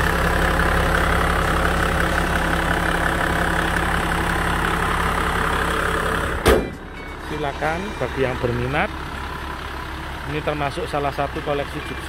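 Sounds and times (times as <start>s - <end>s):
diesel engine idling: 0.0s - 12.0s
short thump: 6.4s - 7.2s.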